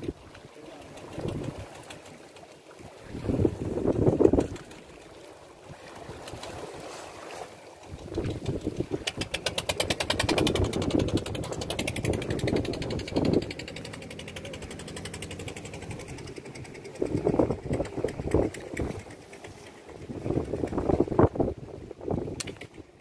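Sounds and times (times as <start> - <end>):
boat engine knocking: 0.0 - 2.5, 7.9 - 21.4.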